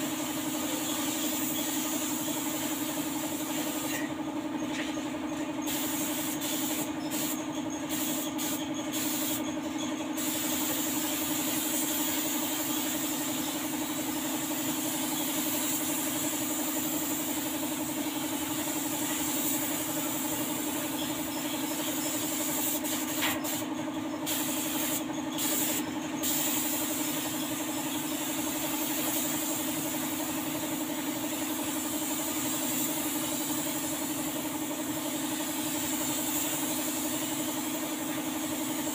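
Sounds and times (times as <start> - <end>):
air compressor hum: 0.0 - 38.9
spray gun hissing: 5.7 - 9.4, 10.2 - 23.6, 24.3 - 30.7, 31.4 - 34.1, 35.2 - 38.0.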